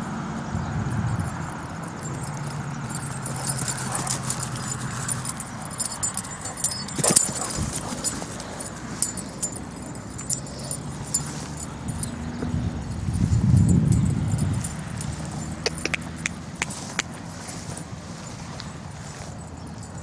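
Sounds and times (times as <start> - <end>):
collar tags jingling: 0.0 - 20.0.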